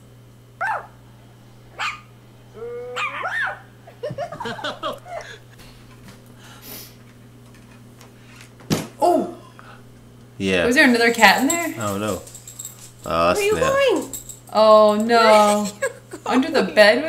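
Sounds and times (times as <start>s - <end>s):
small animal yipping and whining: 1.7s - 3.7s.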